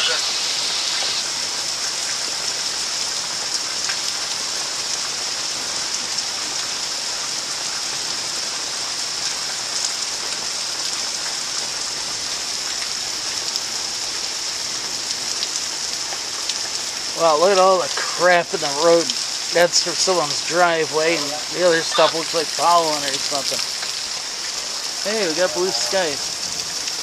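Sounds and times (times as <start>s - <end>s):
heavy rain hissing: 0.0s - 27.0s
raindrop ticks: 15.1s - 27.0s.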